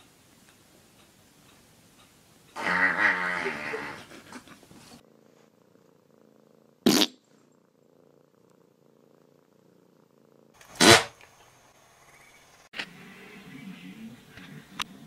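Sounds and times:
cat purring: 0:02.5 - 0:10.6.

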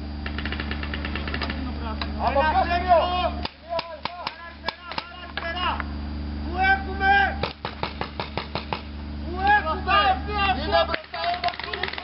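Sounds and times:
paintball markers firing: 0:00.2 - 0:01.7, 0:07.4 - 0:08.9, 0:10.9 - 0:12.0.

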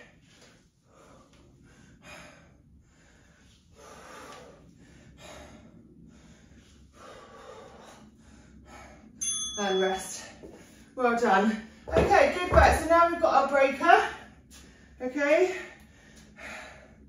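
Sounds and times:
hard rhythmic breathing: 0:00.0 - 0:09.3, 0:14.0 - 0:17.0.

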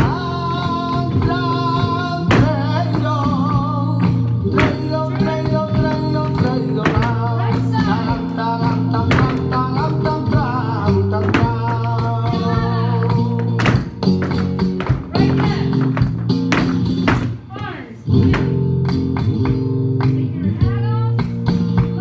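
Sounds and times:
person singing: 0:00.0 - 0:13.9, 0:15.1 - 0:15.9
flamenco guitar: 0:00.0 - 0:22.0.

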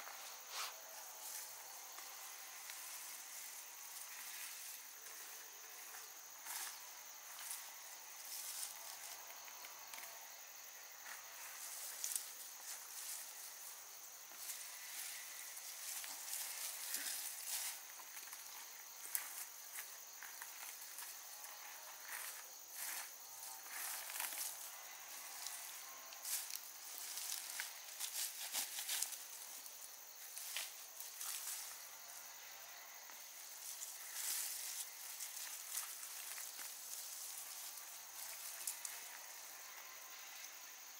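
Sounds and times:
high insect drone: 0:00.0 - 0:40.9
undergrowth rustling and crackling: 0:11.0 - 0:31.9, 0:33.1 - 0:39.6.

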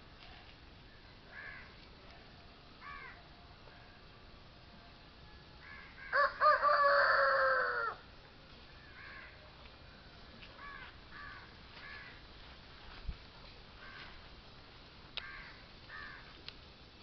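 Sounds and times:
crows cawing: 0:01.3 - 0:01.8, 0:02.8 - 0:03.2, 0:05.6 - 0:08.0, 0:08.9 - 0:09.4, 0:10.6 - 0:12.2, 0:13.8 - 0:14.2, 0:15.2 - 0:16.3
rooster crowing: 0:05.6 - 0:08.0.

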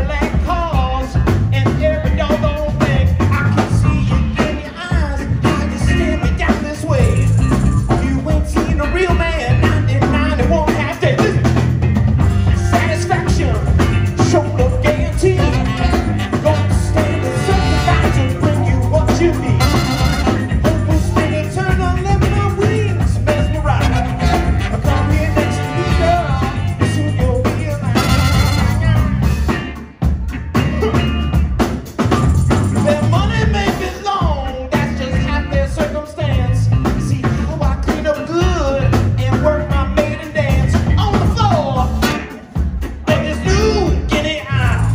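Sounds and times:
live band playing: 0:00.0 - 0:44.9
horn section playing: 0:14.2 - 0:21.2, 0:23.5 - 0:26.8, 0:27.7 - 0:29.3.

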